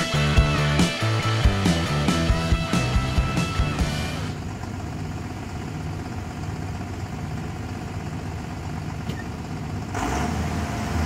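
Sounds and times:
tractor diesel engine idling: 0:00.0 - 0:11.0.

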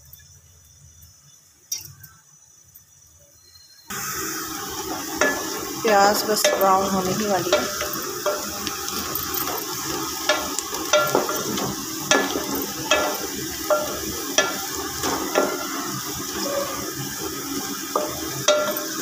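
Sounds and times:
onions sizzling in oil: 0:00.0 - 0:19.0
wooden spoon scraping pot: 0:04.8 - 0:19.0.

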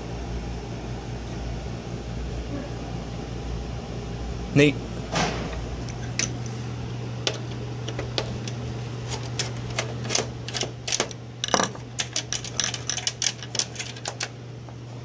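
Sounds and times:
steady low hum: 0:00.0 - 0:15.0
screwdriver clicking on metal: 0:07.3 - 0:14.3.

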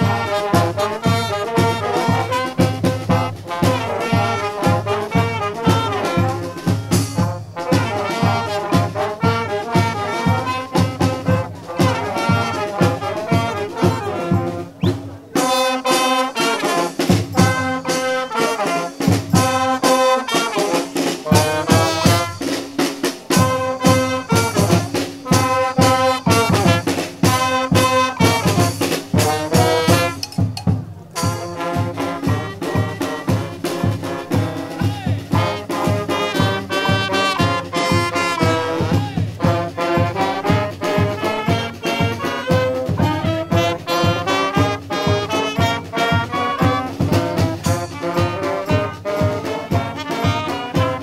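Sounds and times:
brass band horns: 0:00.0 - 0:51.0
steady drumbeat: 0:00.0 - 0:51.0.

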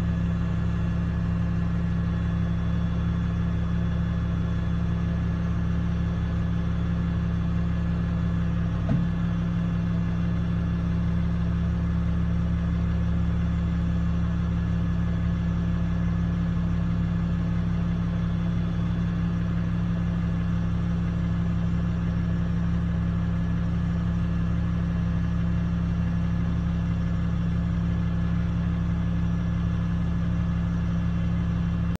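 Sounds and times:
diesel engine droning: 0:00.0 - 0:32.0
short knock: 0:08.8 - 0:09.2.

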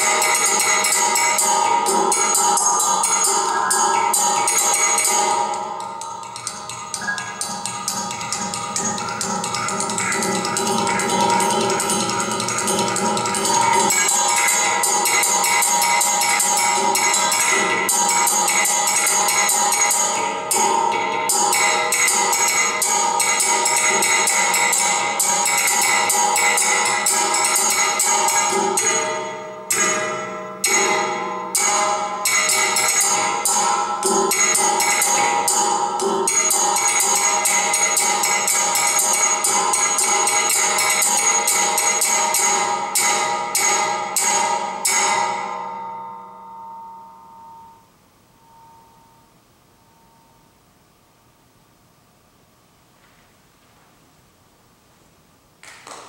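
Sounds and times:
metal rods struck with sticks: 0:00.0 - 0:45.6
metallic ringing tones: 0:00.0 - 0:51.4.

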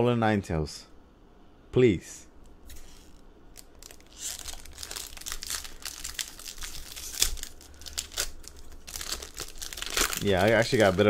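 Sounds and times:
foil wrapper crackling: 0:02.6 - 0:11.0.

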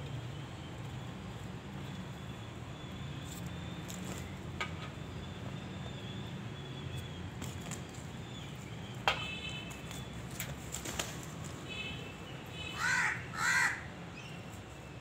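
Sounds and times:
crow caw: 0:12.8 - 0:13.9.

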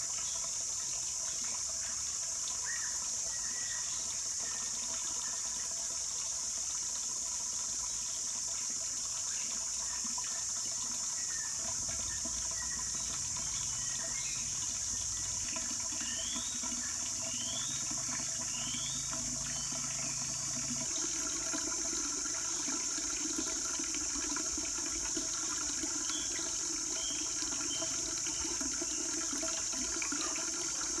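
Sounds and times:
water pouring into ceramic jar: 0:00.0 - 0:31.0
bird chirps: 0:15.9 - 0:20.3.

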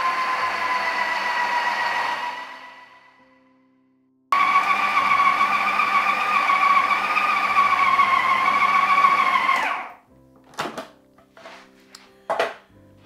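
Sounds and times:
food processor motor running: 0:00.0 - 0:02.8, 0:04.4 - 0:09.9.

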